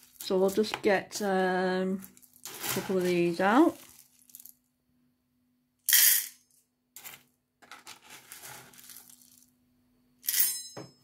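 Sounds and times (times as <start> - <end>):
dry food pouring into metal bowl: 2.0 - 4.6, 7.0 - 9.5.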